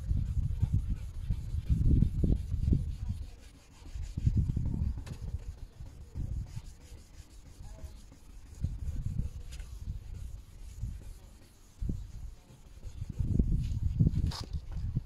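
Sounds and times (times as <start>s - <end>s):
wet-sanding plastic by hand: 0.0s - 15.0s.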